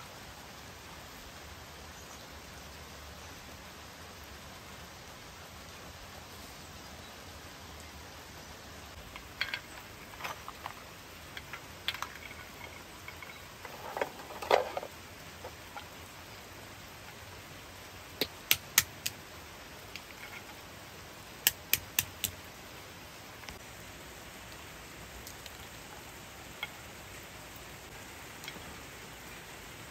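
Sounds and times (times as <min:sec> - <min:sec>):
clatter of handling: 0:09.0 - 0:15.9
stone knocking walnuts: 0:18.2 - 0:19.2, 0:21.5 - 0:22.4.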